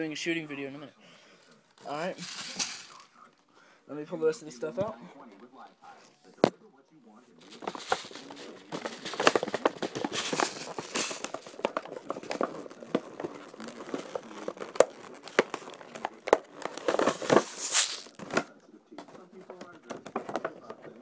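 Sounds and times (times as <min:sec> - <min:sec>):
plastic wrapping crinkling: 0:01.8 - 0:03.1, 0:07.4 - 0:18.5.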